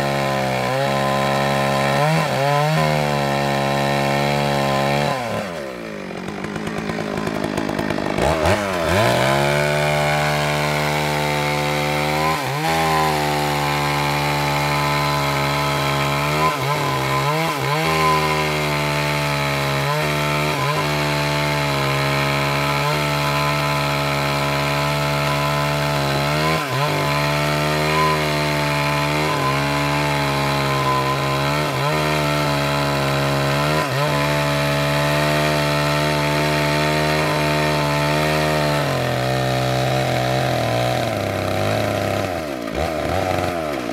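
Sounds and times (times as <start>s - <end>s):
chainsaw cutting log: 0.0s - 43.9s.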